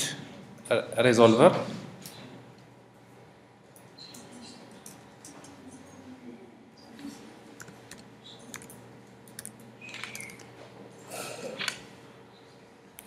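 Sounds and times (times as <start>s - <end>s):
computer keyboard typing: 7.6s - 10.5s.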